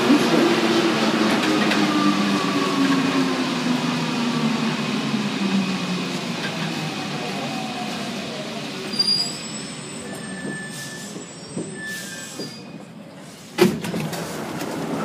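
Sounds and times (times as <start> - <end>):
high squeals from running gear: 8.9 - 12.8.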